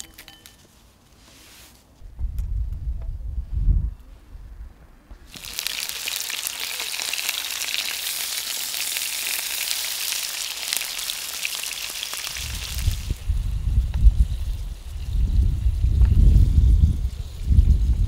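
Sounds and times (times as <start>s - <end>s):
food sizzling in hot oil: 5.3s - 17.9s.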